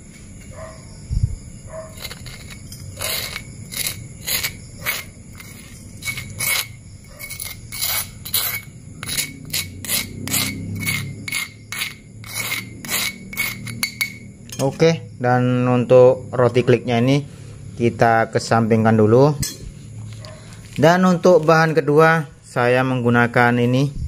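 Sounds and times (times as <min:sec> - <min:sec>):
metal spoon scraping stone mortar: 0:01.8 - 0:14.8.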